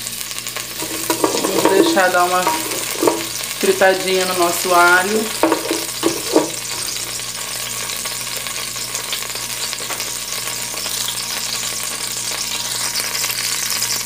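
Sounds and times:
garlic sizzling in hot oil: 0:00.0 - 0:14.0
wooden spoon knocking pot: 0:00.7 - 0:03.4, 0:05.2 - 0:06.8.

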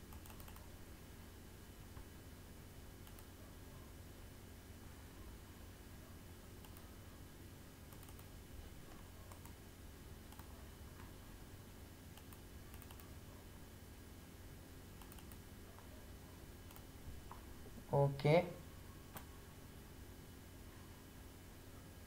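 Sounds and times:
mouse and keyboard clicks: 0:00.0 - 0:00.7, 0:06.6 - 0:06.9, 0:07.9 - 0:08.3, 0:12.1 - 0:13.1, 0:15.0 - 0:15.4, 0:16.6 - 0:17.4
low electrical hum: 0:00.0 - 0:22.0.

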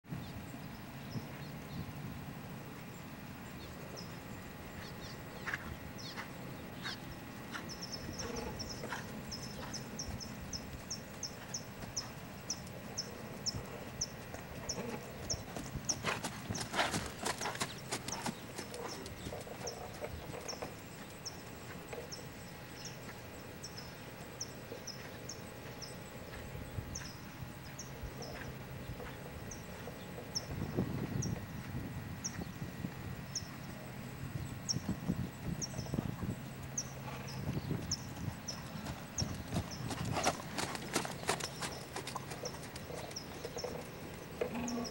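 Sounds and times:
horse hoofbeats: 0:13.5 - 0:22.1, 0:37.0 - 0:44.9.

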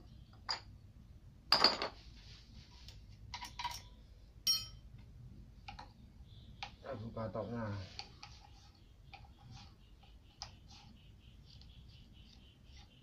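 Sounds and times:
metal tools and engine parts clinking: 0:03.3 - 0:04.8.

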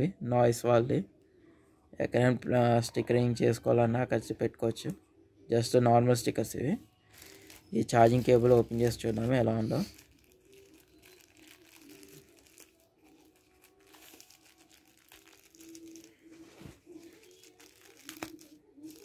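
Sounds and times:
wrapping crinkling: 0:07.1 - 0:19.0.

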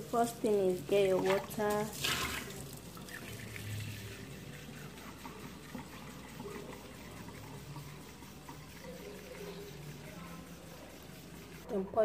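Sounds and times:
tap water filling a bowl: 0:01.0 - 0:09.6.

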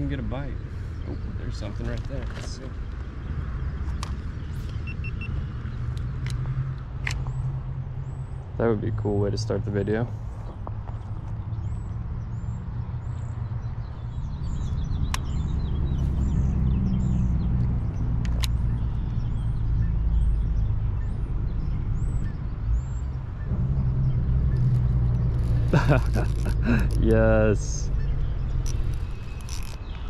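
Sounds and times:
bird chirping: 0:00.0 - 0:30.0
sharp clicks: 0:05.9 - 0:07.4, 0:15.0 - 0:15.4, 0:17.6 - 0:19.2, 0:24.5 - 0:27.1, 0:28.6 - 0:30.0
low motor rumble: 0:14.8 - 0:30.0.

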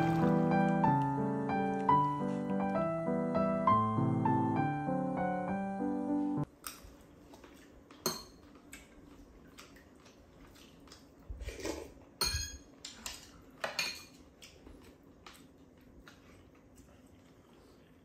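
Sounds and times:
utensils clinking on ceramic bowls: 0:08.0 - 0:08.4, 0:12.2 - 0:14.2.

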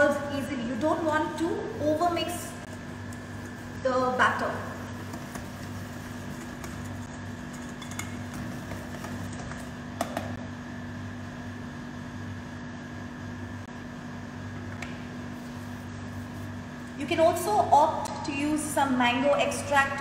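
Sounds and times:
machine hum: 0:00.0 - 0:17.8
whisk tapping bowl: 0:04.7 - 0:10.4.

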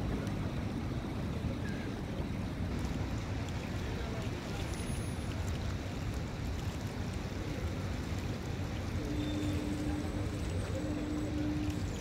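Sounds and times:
choppy lake water: 0:00.0 - 0:12.0
faint steady hum: 0:07.1 - 0:12.0.

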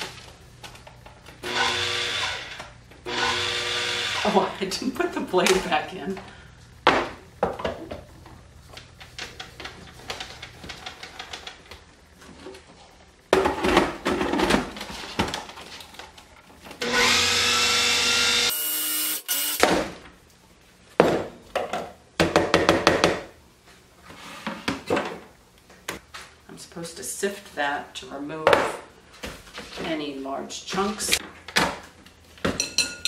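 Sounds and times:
food processor motor running: 0:01.4 - 0:04.4.

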